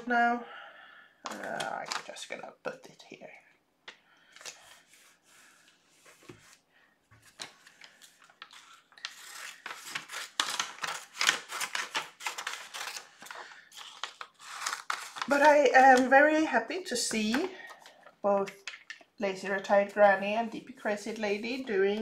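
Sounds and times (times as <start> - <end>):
paper rustling: 4.3 - 16.4
scissors cutting paper: 8.5 - 13.1, 13.8 - 16.0.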